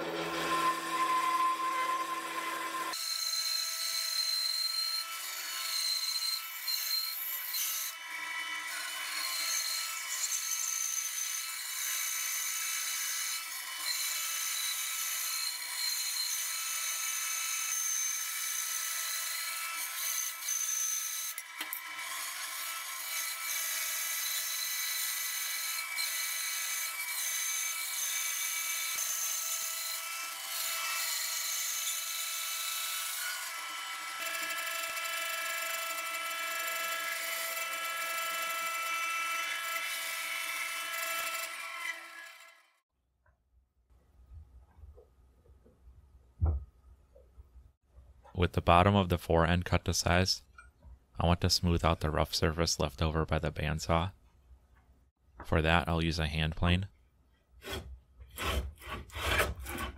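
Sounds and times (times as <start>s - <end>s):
bandsaw cutting wood: 0.0s - 42.8s, 57.6s - 59.9s.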